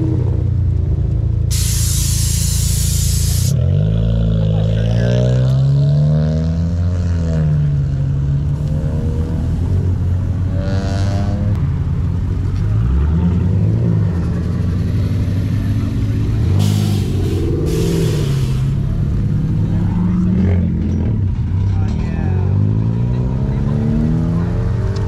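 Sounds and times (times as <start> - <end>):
car engines revving: 0.0 - 25.0
short hissing bursts: 1.5 - 3.6, 16.6 - 18.8.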